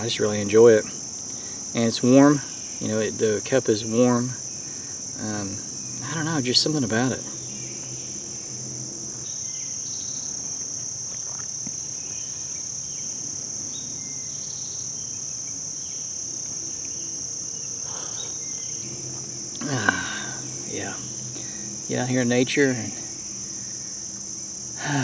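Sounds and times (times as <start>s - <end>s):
high-pitched insect chorus: 0.0s - 25.0s
faint bird chirps: 16.7s - 19.0s.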